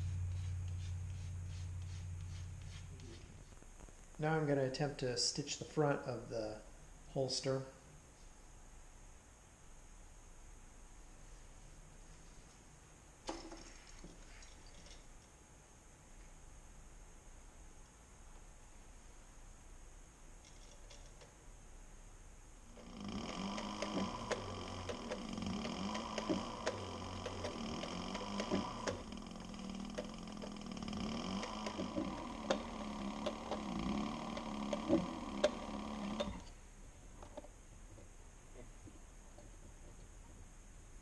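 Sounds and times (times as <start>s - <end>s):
sewing machine stitching: 22.7s - 36.6s.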